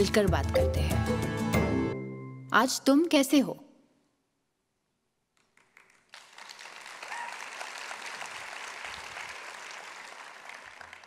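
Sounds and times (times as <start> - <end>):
audience applauding: 5.4 - 11.0.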